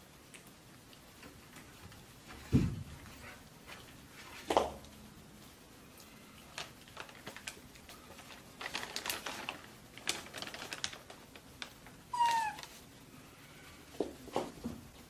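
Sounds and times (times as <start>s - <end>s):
plastic bag rustling: 6.5s - 13.0s
monkey squeak: 12.2s - 12.6s.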